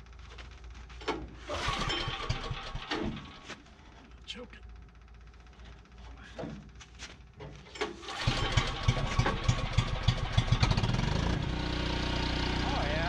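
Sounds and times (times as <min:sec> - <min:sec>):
generator engine running: 0:01.4 - 0:03.8, 0:07.6 - 0:13.0.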